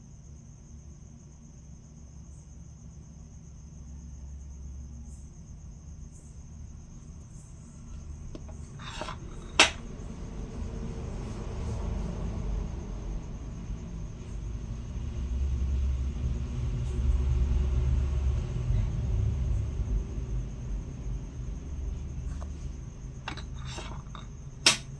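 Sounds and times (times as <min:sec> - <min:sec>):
coin scraping: 0:08.4 - 0:09.8, 0:23.3 - 0:24.9.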